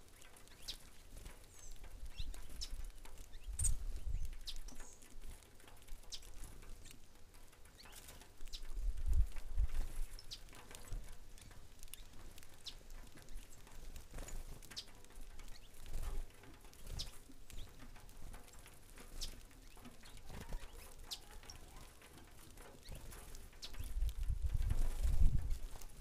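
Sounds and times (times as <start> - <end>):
finches chirping: 0.1 - 0.9, 1.5 - 5.2, 7.7 - 8.8, 9.9 - 17.9, 19.1 - 24.1.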